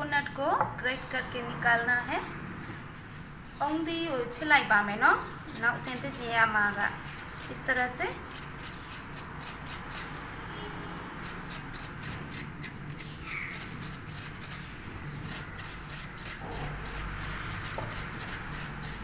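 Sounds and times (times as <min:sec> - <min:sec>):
coconut grating scrapes: 0:05.5 - 0:19.0.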